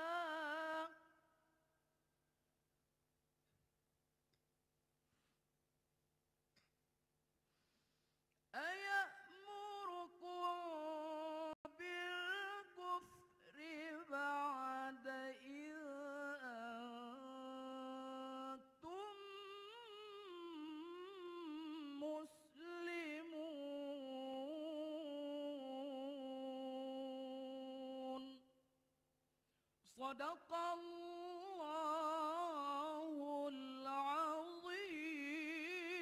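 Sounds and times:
man reciting melodically: 0:08.6 - 0:28.4, 0:29.9 - 0:36.0.

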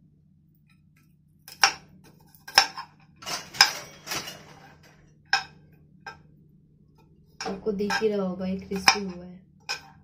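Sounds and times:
metal spoon scraping a frying pan: 0:07.4 - 0:10.0.

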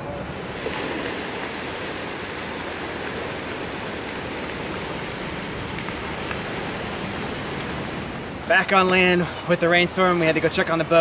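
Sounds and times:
heavy rain hissing: 0:00.0 - 0:10.2
raindrop ticks: 0:03.0 - 0:06.6.

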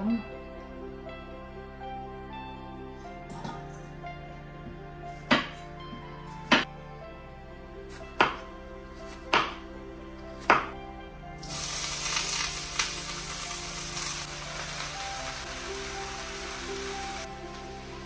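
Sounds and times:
knife striking chopping board: 0:05.3 - 0:05.6, 0:08.2 - 0:08.4, 0:09.3 - 0:09.6, 0:10.4 - 0:10.7
vegetables sizzling in a pan: 0:11.4 - 0:18.0.

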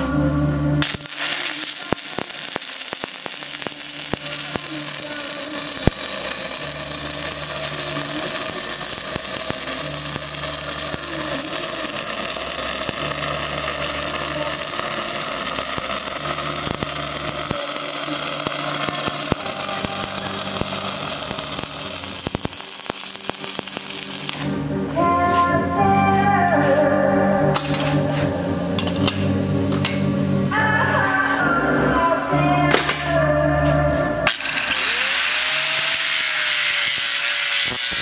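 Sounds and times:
welding arc crackling: 0:00.8 - 0:24.6, 0:34.3 - 0:38.0.

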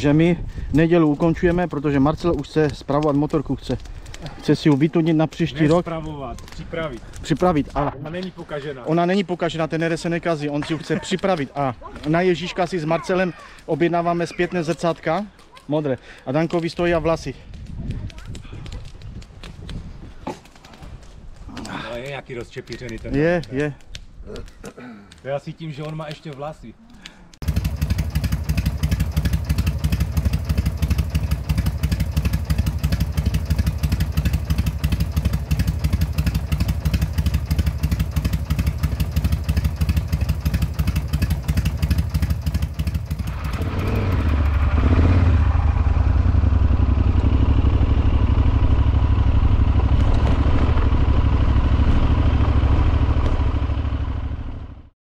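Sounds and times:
motorcycle engine running: 0:27.4 - 0:54.9.

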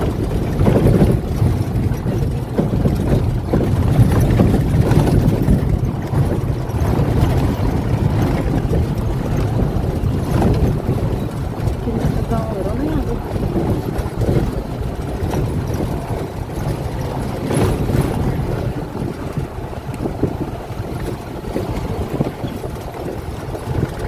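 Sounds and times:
vehicle engine and road noise: 0:00.0 - 0:24.0.

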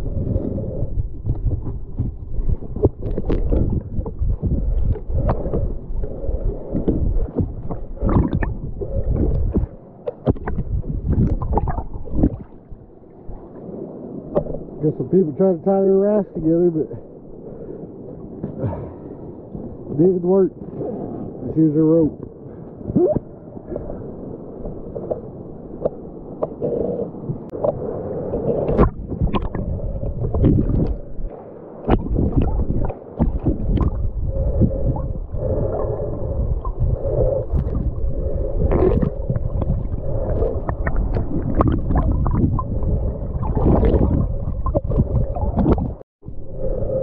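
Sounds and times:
muffled underwater river rush: 0:00.0 - 0:47.0
bubbles gurgling underwater: 0:06.8 - 0:12.6, 0:28.5 - 0:31.1, 0:31.8 - 0:46.0.

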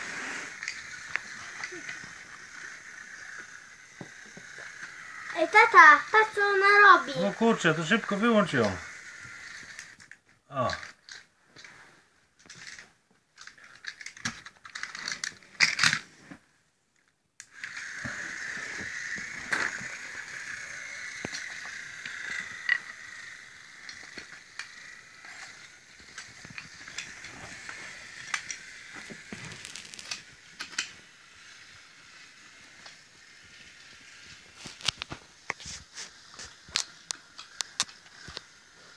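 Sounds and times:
toy locomotive motor whining: 0:00.0 - 0:11.8, 0:12.5 - 0:12.8, 0:13.4 - 0:16.0, 0:17.4 - 0:38.9
wooden toy track knocking: 0:03.4 - 0:05.2.

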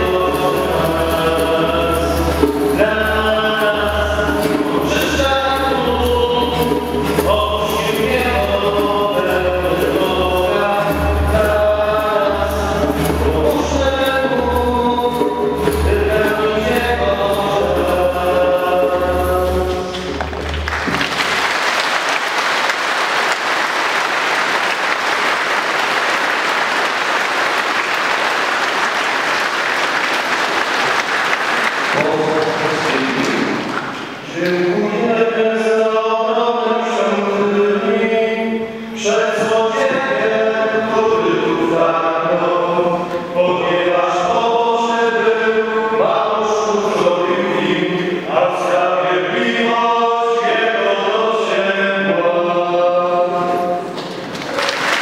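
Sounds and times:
group singing: 0:00.0 - 0:20.2, 0:34.2 - 0:54.0
hand drum: 0:00.0 - 0:21.5
congregation applauding: 0:19.7 - 0:34.2, 0:53.6 - 0:55.0
voices singing a slow chant: 0:34.3 - 0:53.8.

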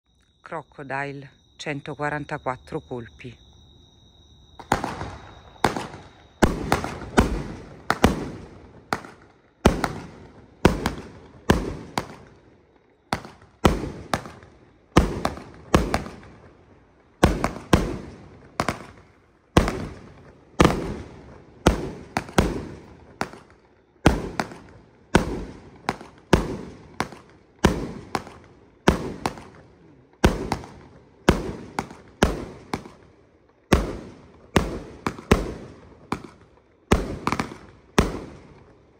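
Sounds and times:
fireworks firing sharp bangs: 0:04.6 - 0:38.9.

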